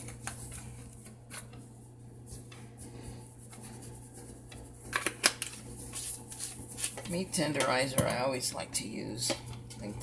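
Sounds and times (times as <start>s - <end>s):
steady low hum: 0.0s - 10.0s
hands rubbing meat: 0.1s - 7.2s.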